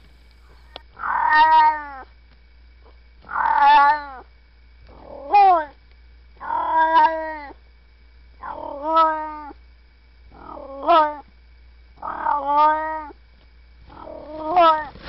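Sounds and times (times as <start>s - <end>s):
cat meowing: 0.6s - 2.0s, 3.3s - 4.2s, 6.4s - 7.6s, 8.4s - 9.6s, 10.4s - 11.2s, 12.0s - 13.2s, 14.0s - 15.0s.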